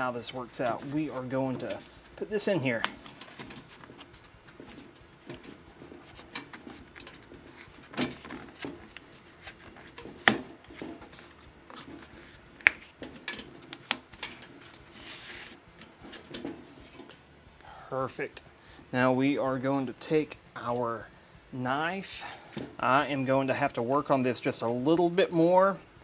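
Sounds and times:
soft rustle: 0.0 - 17.3
handling clicks and knocks: 0.4 - 15.0, 15.7 - 17.2.

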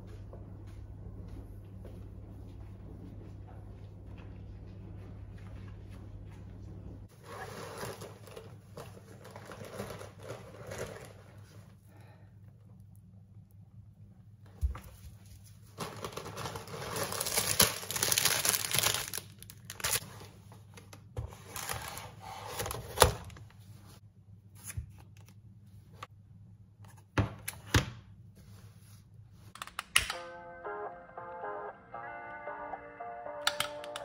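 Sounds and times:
plastic bag rustling and crinkling: 7.1 - 11.8, 15.1 - 23.9.

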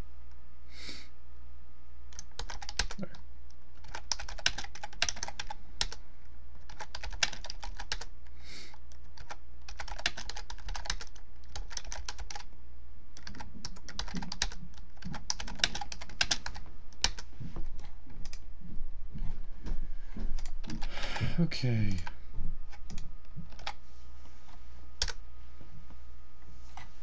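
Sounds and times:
typing on computer keyboard: 2.1 - 3.2, 3.8 - 6.0, 6.6 - 8.1, 8.8 - 12.5, 13.2 - 17.2, 22.8 - 23.8.

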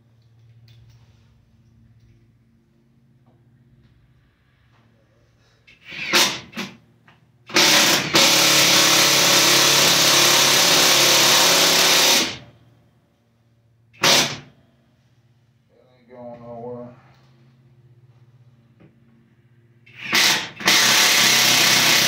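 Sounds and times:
cordless drill driving screw: 19.9 - 22.0.

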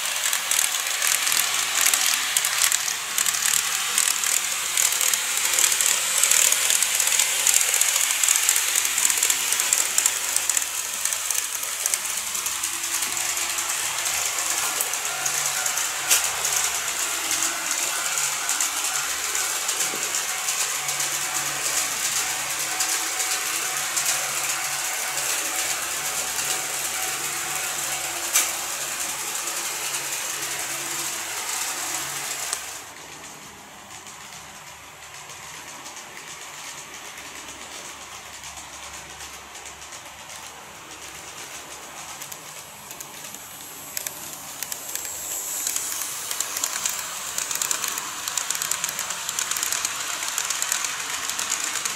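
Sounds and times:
model train motor whirring: 0.0 - 51.9
small clicks: 0.1 - 12.2, 41.7 - 51.9.

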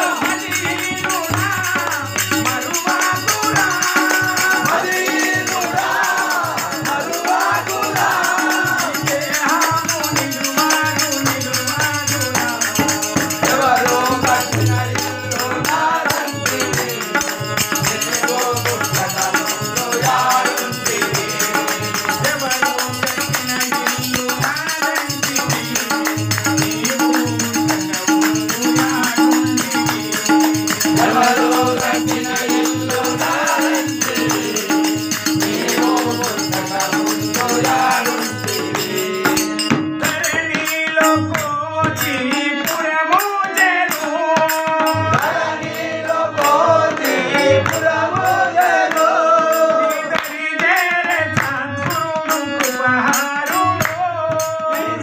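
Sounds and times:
harmonium: 0.0 - 55.0
man singing: 0.0 - 55.0
tabla beat: 0.0 - 55.0
small hand cymbals: 0.1 - 40.3.

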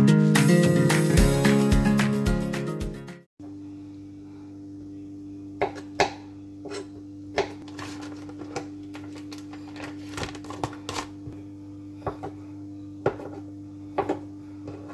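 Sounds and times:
steady low hum: 3.4 - 14.9.

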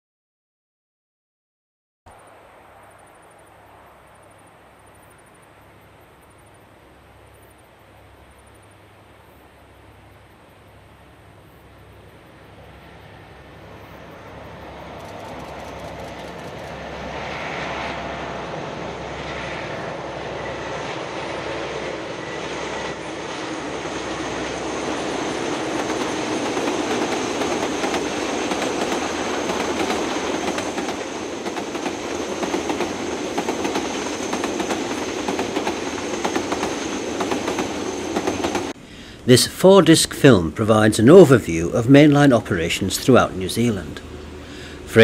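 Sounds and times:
freight train wheels clattering: 24.9 - 38.8.

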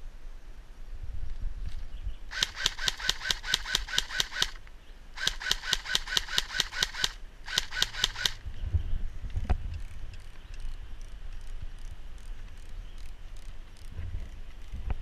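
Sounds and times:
airsoft gun rapid fire: 2.3 - 4.6, 5.2 - 8.4.

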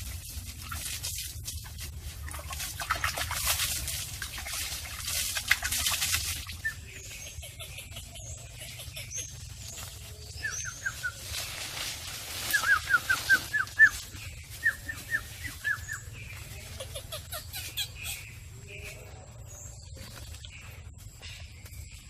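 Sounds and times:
small animal chirping: 6.6 - 11.2, 14.7 - 18.4.

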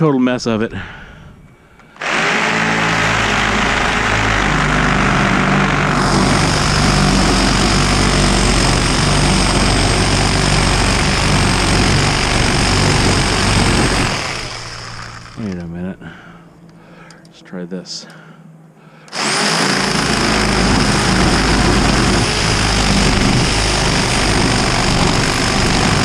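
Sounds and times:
power tool cutting metal: 2.0 - 15.6, 19.1 - 26.0.

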